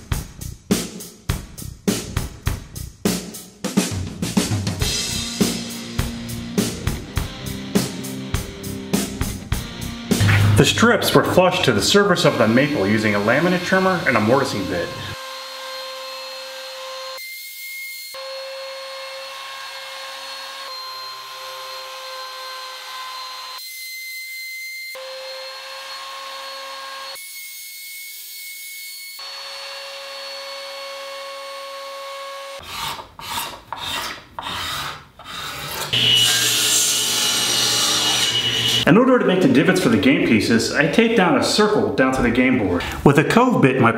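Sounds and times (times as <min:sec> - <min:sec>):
table saw cutting wood: 0:04.9 - 0:38.9
trimmer whining: 0:06.5 - 0:17.2, 0:38.1 - 0:38.9.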